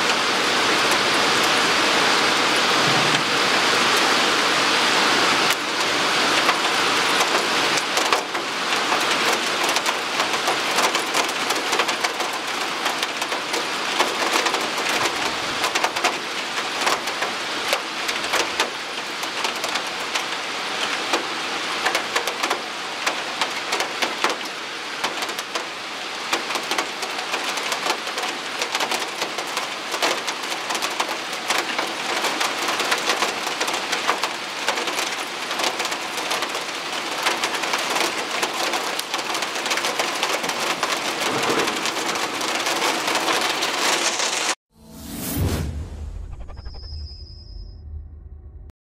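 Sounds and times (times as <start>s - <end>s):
heavy rain hiss: 0.0s - 44.6s
raindrops ticking on window glass: 6.4s - 25.7s, 26.3s - 43.9s.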